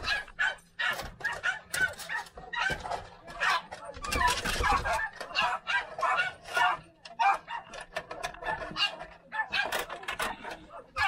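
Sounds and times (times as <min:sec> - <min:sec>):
dogs yipping and whining: 0:00.0 - 0:11.0.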